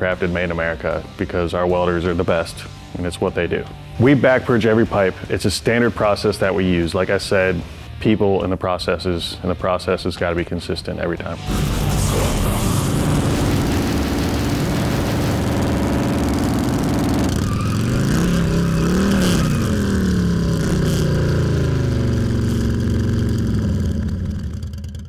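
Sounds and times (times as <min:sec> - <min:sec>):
motorcycle engine revving: 0:11.5 - 0:25.0.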